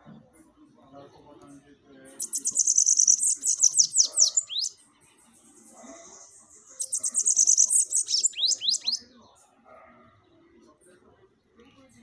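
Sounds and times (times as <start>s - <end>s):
bird singing buzzy trills: 2.0s - 9.1s.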